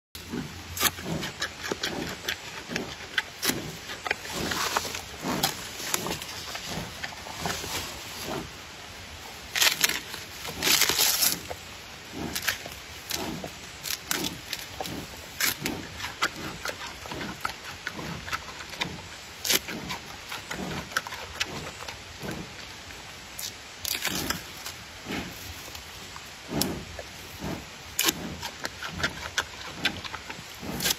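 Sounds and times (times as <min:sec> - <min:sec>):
panda chewing bamboo: 0:00.2 - 0:08.6, 0:09.4 - 0:22.6, 0:26.5 - 0:30.9
bamboo cracking and splitting: 0:09.5 - 0:11.6, 0:23.4 - 0:24.8.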